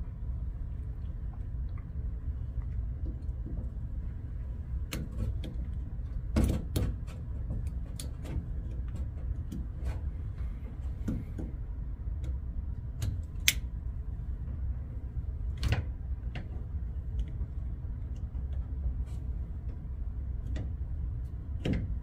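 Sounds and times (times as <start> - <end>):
steady low hum: 0.0 - 22.0
metal clip clicking: 13.4 - 13.7.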